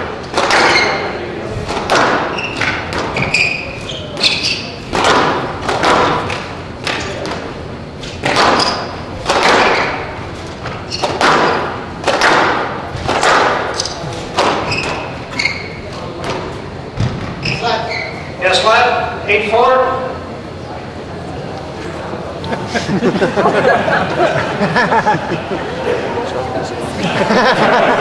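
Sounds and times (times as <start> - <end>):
squash ball hits: 0.0 - 1.0, 1.6 - 3.4, 4.1 - 15.2
shoes squeaking on wooden floor: 2.3 - 4.8, 9.8 - 11.2, 14.6 - 16.0, 17.0 - 18.8.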